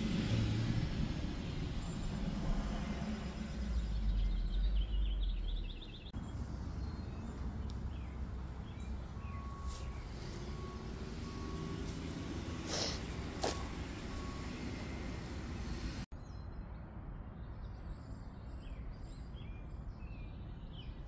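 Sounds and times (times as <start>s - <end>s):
low vehicle rumble: 0.0s - 16.1s
bird chirping: 3.0s - 21.0s
faint repeated beeps: 9.4s - 12.5s, 13.4s - 15.2s.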